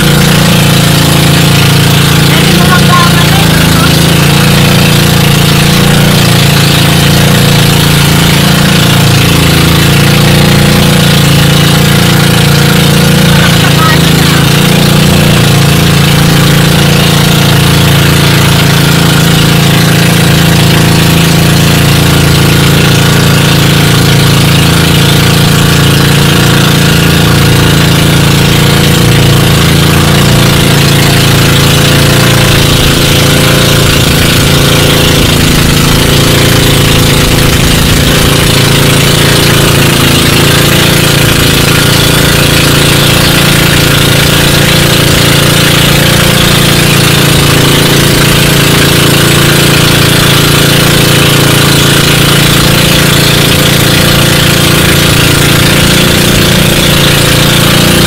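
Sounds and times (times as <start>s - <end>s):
boat engine running: 0.0s - 58.0s.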